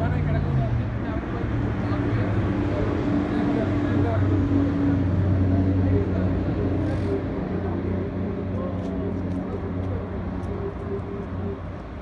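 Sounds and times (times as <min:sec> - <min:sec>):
faint voices: 0:00.0 - 0:12.0.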